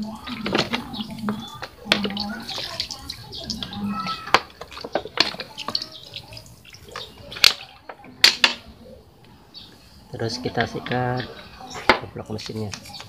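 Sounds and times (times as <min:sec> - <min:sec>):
water splashing on metal engine: 0:00.0 - 0:08.8.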